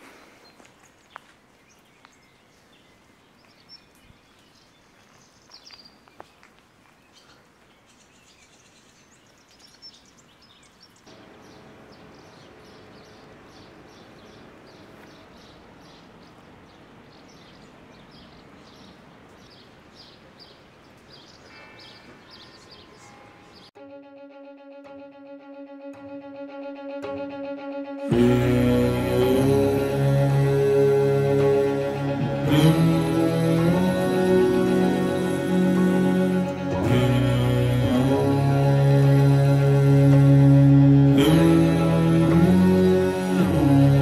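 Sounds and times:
bird chirping: 0.4 - 23.8.

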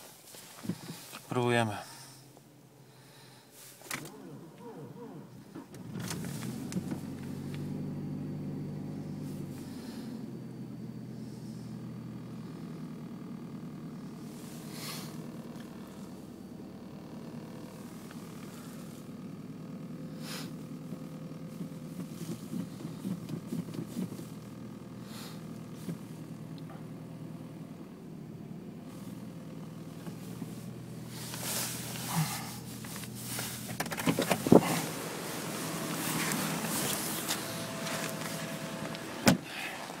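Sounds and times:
rustling: 0.0 - 1.3, 29.8 - 40.0
car engine idling: 0.0 - 40.0.

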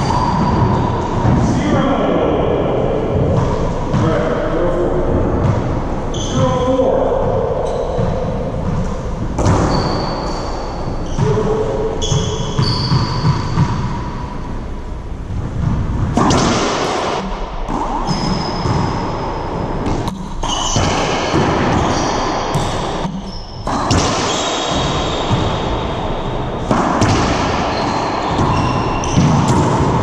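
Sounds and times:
sneakers squeaking on hardwood: 0.0 - 1.4, 7.6 - 14.4, 18.0 - 30.0.

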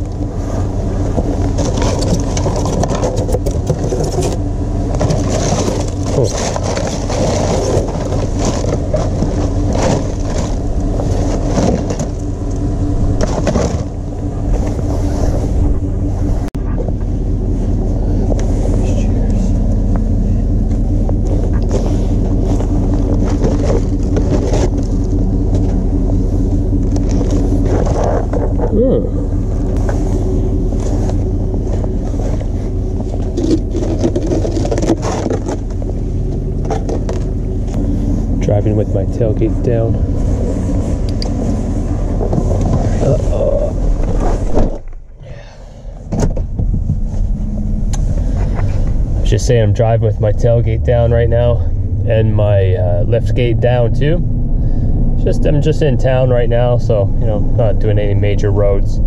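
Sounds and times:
truck engine idling: 0.0 - 59.0
plastic bins clunking: 1.1 - 14.9, 20.7 - 25.9, 30.7 - 37.8.

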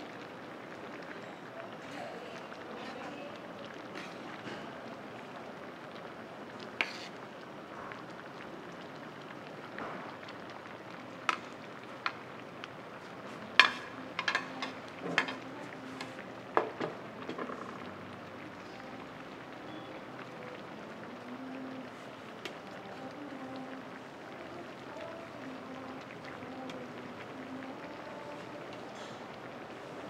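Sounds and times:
steady low hiss: 0.0 - 30.0
utensils clinking on dishes: 13.6 - 15.5.

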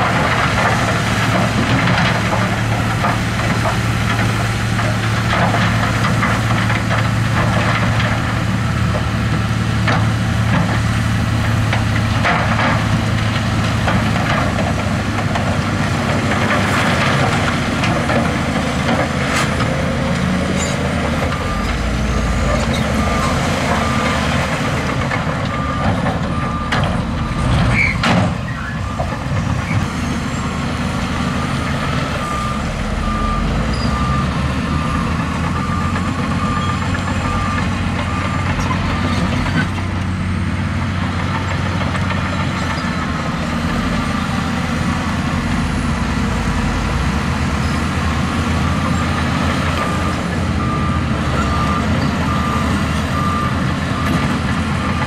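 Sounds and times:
heavy machine engine running: 0.0 - 55.0
reversing alarm beeping: 20.6 - 27.5, 31.3 - 39.7, 48.6 - 55.0.

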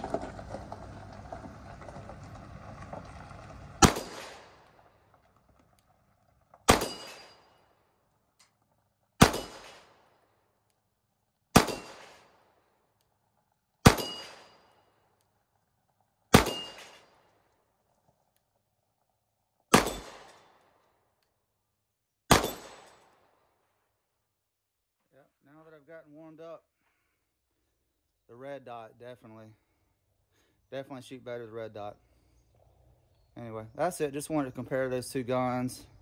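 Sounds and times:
pistol shots with echo: 3.8 - 4.7, 6.7 - 7.6, 9.2 - 10.1, 11.5 - 12.6, 13.8 - 14.7, 16.3 - 17.3, 19.7 - 20.6, 22.3 - 23.4.

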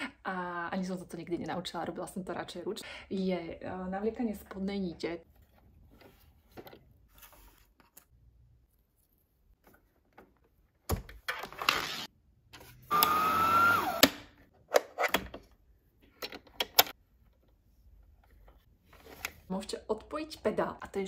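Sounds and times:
sewing machine motor whine: 12.9 - 14.0.

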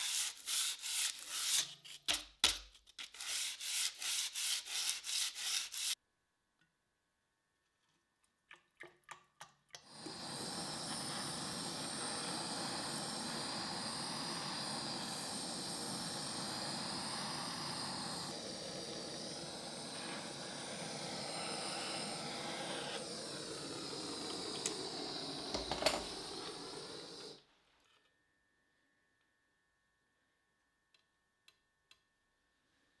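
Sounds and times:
blowtorch flame hissing: 9.8 - 27.5.

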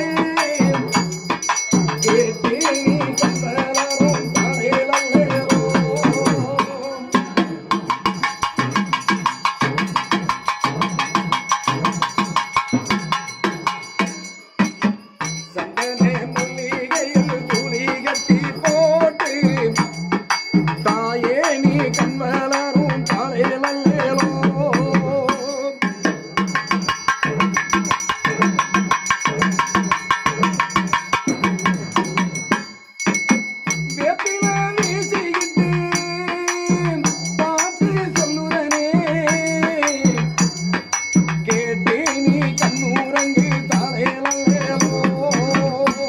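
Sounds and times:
devotional song: 0.0 - 8.2, 15.3 - 26.4, 33.9 - 46.0
bell-like ringing tones: 0.0 - 46.0
steady drum beat: 0.0 - 46.0.

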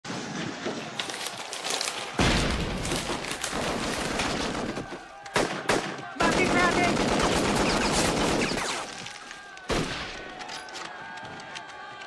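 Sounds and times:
rifle gunfire: 5.4 - 8.9.

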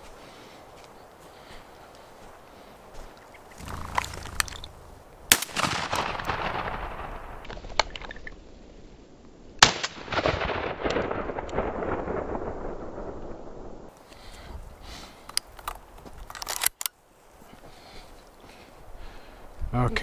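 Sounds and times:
shotgun shots: 5.3 - 7.6.

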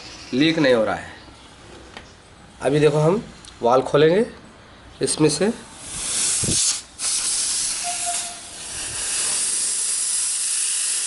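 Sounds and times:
compressed air hissing: 5.6 - 11.0.

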